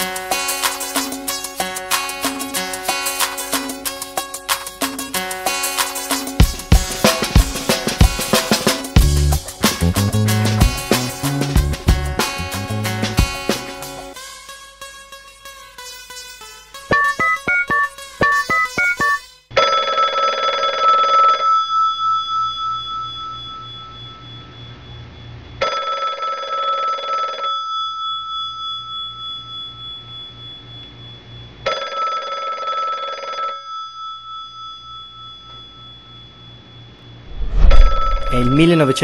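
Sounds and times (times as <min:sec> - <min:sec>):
plucked music: 0:16.9 - 0:19.2
telephone bell ringing: 0:16.9 - 0:24.6, 0:25.6 - 0:30.6, 0:31.6 - 0:36.6.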